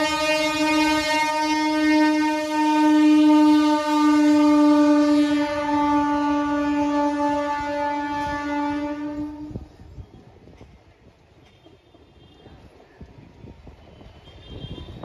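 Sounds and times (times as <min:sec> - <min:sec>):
train horn blast: 0:00.0 - 0:09.8
passing train coaches rumble: 0:00.0 - 0:15.0.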